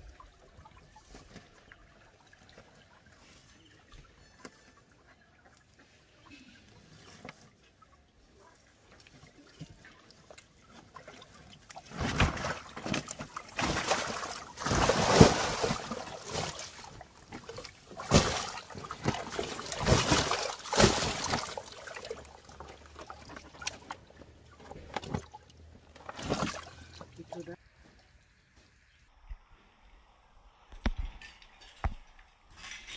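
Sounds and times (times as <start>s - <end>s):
fish splashing in water tank: 9.3s - 27.4s.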